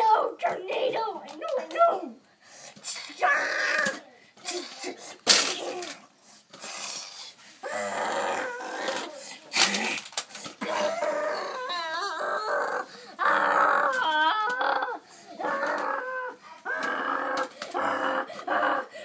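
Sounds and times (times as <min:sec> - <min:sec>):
child making vocal sound effects: 0:10.6 - 0:19.0.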